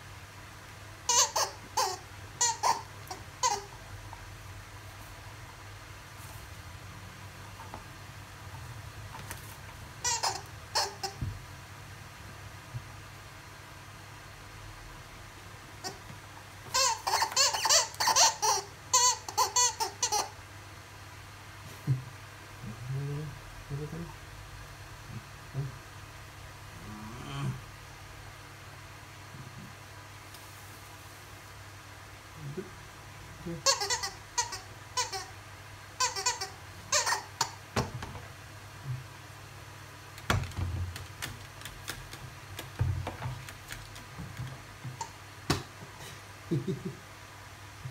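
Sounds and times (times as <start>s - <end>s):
squeaky bird toy squeaking: 1.1s - 3.7s, 10.0s - 11.2s, 16.7s - 20.3s, 33.6s - 35.3s, 36.0s - 37.6s.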